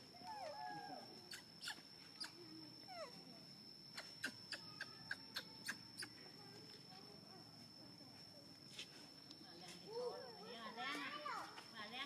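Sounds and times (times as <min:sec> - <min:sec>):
baby monkey squeaking: 0:01.3 - 0:02.4.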